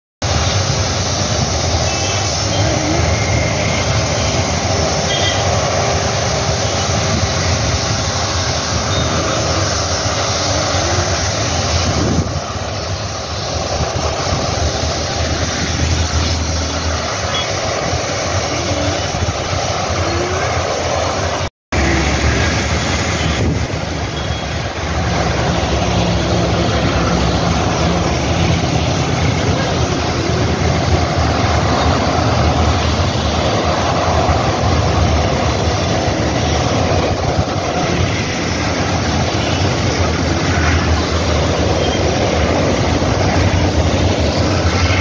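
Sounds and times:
road traffic rumble: 0:00.2 - 0:45.0.

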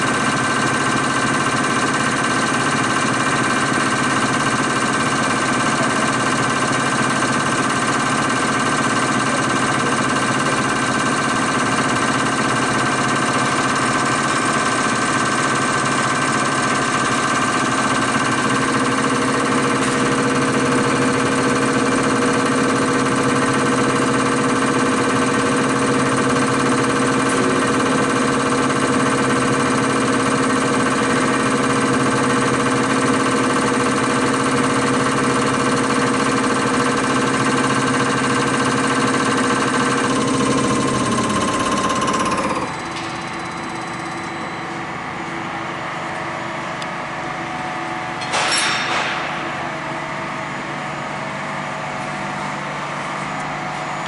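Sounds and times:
test bench mechanical din: 0:48.2 - 0:50.4.

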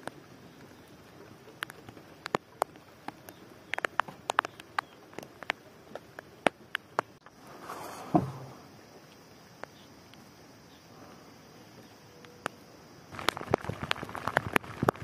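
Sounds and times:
rainwater dripping: 0:00.0 - 0:07.4, 0:12.3 - 0:15.0
soft rustling: 0:07.3 - 0:08.8.

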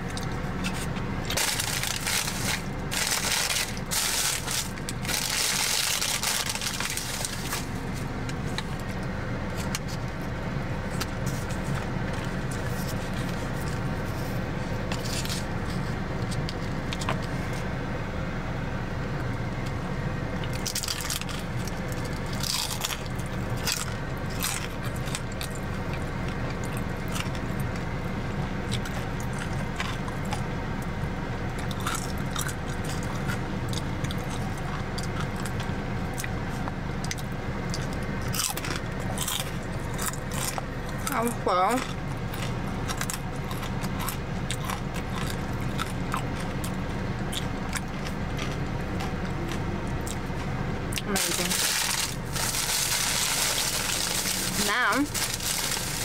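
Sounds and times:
chewing and crunching food: 0:00.0 - 0:17.7, 0:20.4 - 0:56.0
car cabin hum: 0:39.0 - 0:56.0.

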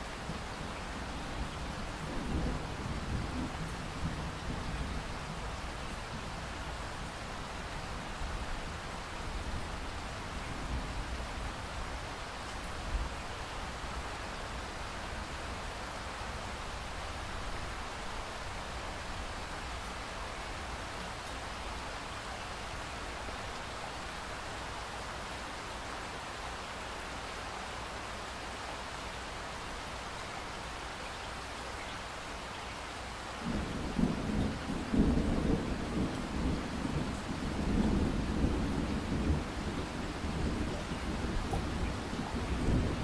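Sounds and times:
steady rain falling: 0:00.0 - 0:43.0
thunder rumbling: 0:33.4 - 0:43.0.

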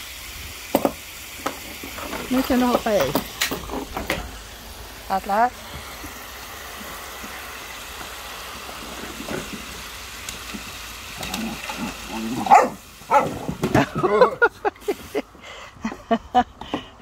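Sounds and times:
garden hose spraying water: 0:00.0 - 0:16.5
splashing in paddling pool: 0:04.2 - 0:15.2
puppy barking and yipping: 0:12.4 - 0:13.5.

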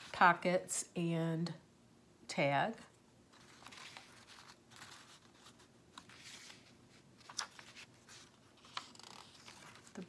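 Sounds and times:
pages turning: 0:03.3 - 0:10.0
paper rustling: 0:03.3 - 0:10.0.

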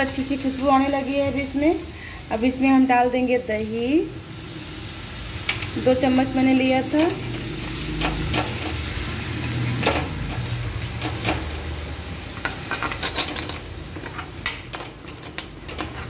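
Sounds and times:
food sizzling in oil: 0:00.0 - 0:14.7
metal ladle scraping a pan: 0:12.4 - 0:14.4.

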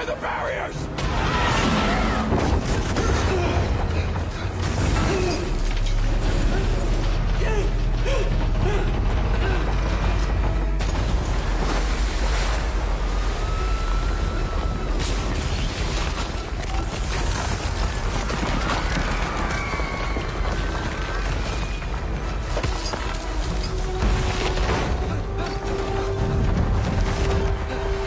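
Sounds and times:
heavy low rumble: 0:03.2 - 0:15.4.

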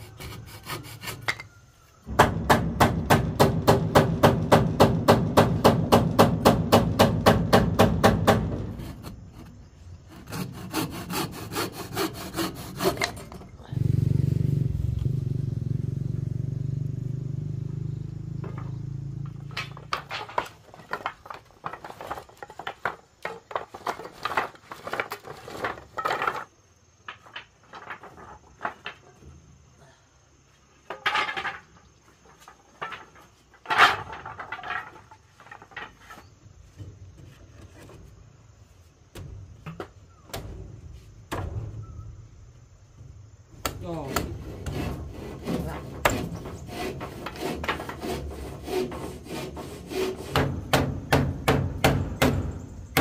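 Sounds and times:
hard objects clattering: 0:18.4 - 0:29.2, 0:30.9 - 0:36.4.

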